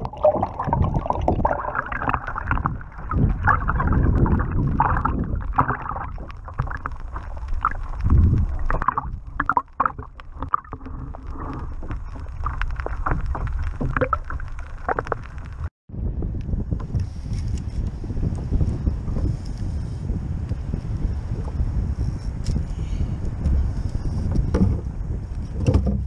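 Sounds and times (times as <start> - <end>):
muffled rushing gurgling water: 0.0 - 17.2.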